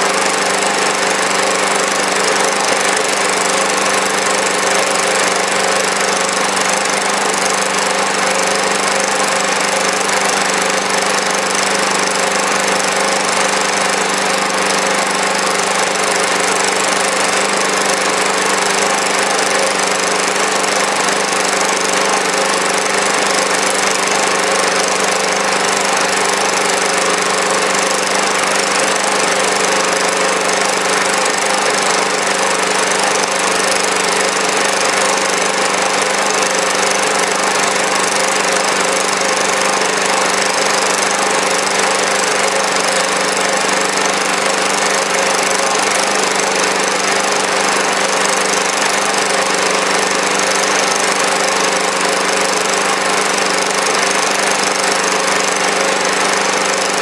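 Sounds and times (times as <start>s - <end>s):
small engine running steadily: 0.0s - 57.0s.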